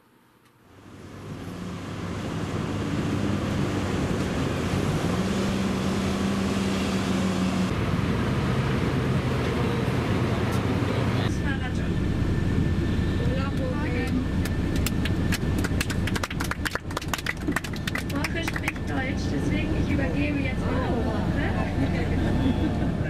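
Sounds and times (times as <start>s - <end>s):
bus engines idling: 0.6s - 23.0s.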